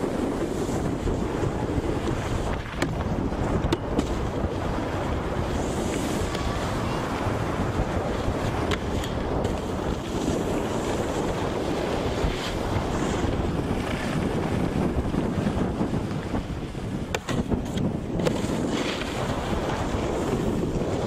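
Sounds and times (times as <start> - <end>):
wind buffeting microphone: 0.0 - 21.0
snowboard hissing over snow: 4.8 - 8.6, 9.4 - 16.0.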